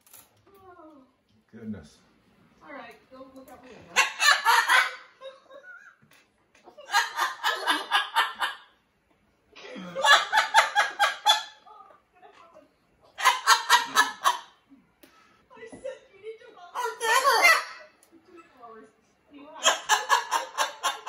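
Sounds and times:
parrot mimicking laughter: 4.0s - 5.8s, 6.8s - 8.7s, 10.0s - 11.7s, 13.2s - 14.6s, 16.7s - 17.9s, 19.6s - 21.0s.

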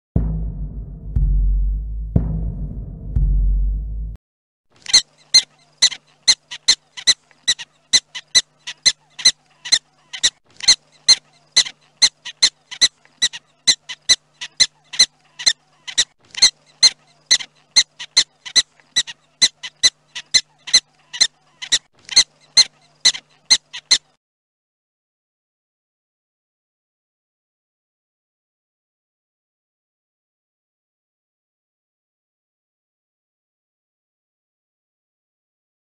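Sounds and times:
drum beat: 0.2s - 4.2s.

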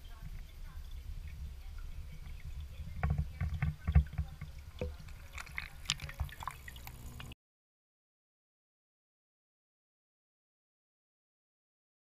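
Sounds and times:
water splashing and trickling: 0.0s - 7.4s.

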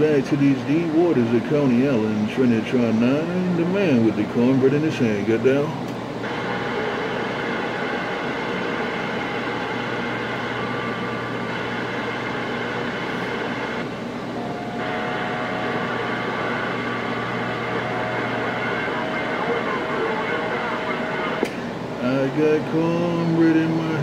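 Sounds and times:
radio static hiss: 5.6s - 14.0s, 14.6s - 24.0s.

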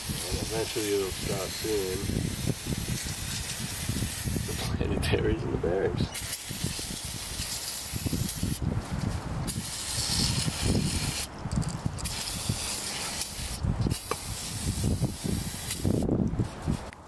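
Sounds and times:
aerosol spray hissing: 0.0s - 4.7s, 6.2s - 8.6s, 9.5s - 11.3s, 12.0s - 16.1s.

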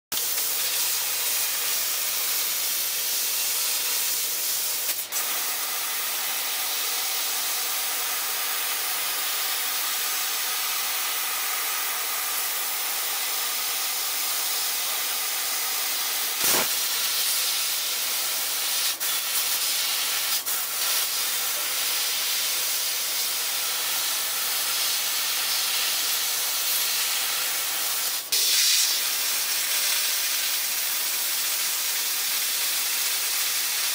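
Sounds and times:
gas jet hissing: 0.2s - 33.9s.

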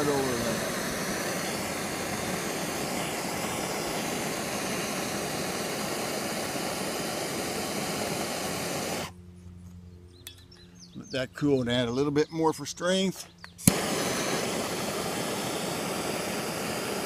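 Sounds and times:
gas torch hissing: 0.0s - 9.2s, 13.6s - 17.0s.

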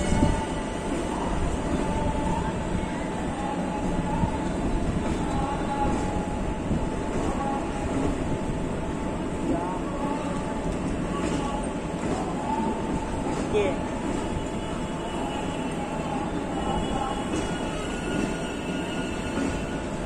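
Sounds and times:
train wheels rumbling on track: 0.0s - 20.0s
high wheel squeal: 17.4s - 19.9s.

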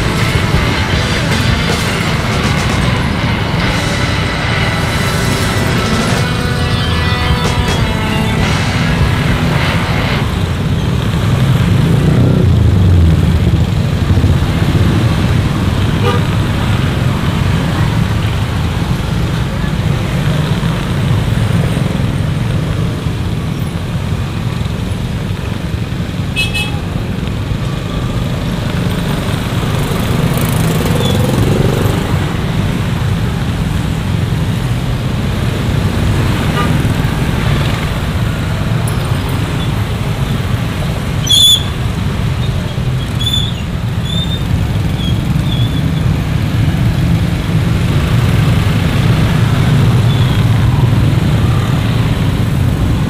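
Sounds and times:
horn toot: 0.0s - 10.9s, 15.9s - 16.5s, 26.4s - 26.9s, 36.2s - 46.1s
motorcycle engines rumbling: 0.0s - 53.0s.

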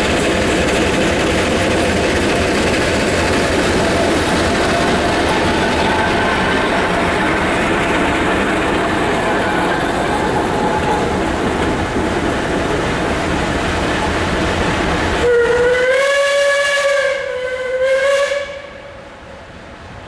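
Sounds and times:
train rumbling past: 0.0s - 20.0s
steam locomotive whistle: 15.2s - 19.2s.

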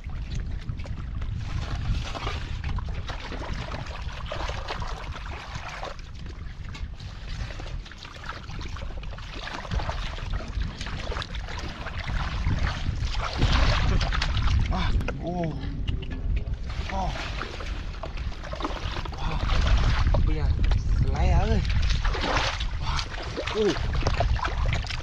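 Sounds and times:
low wind rumble on microphone: 0.0s - 25.0s
hands splashing in muddy water: 1.4s - 15.0s, 21.4s - 25.0s.

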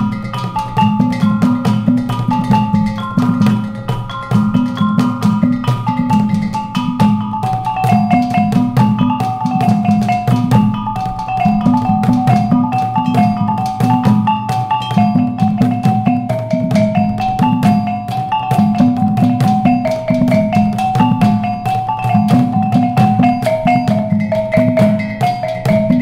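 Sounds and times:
large hanging gongs: 0.0s - 26.0s
sharp drum strikes: 0.0s - 26.0s
small gong keeping time: 0.0s - 26.0s
small gongs playing melody: 0.0s - 26.0s.

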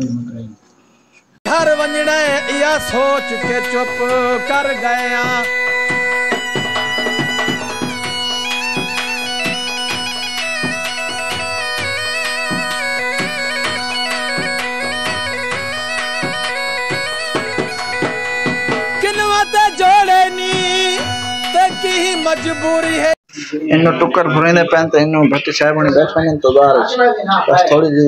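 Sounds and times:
piping melody over drone: 1.5s - 23.2s
steady drum beat: 1.5s - 23.2s
person singing: 1.5s - 23.6s.

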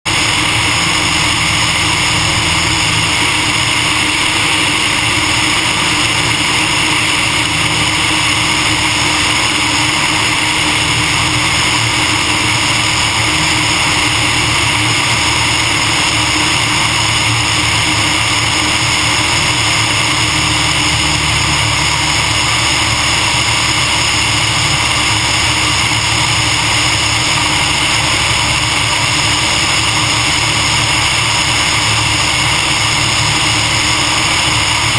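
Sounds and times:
airplane engine and propeller drone: 0.1s - 34.9s.

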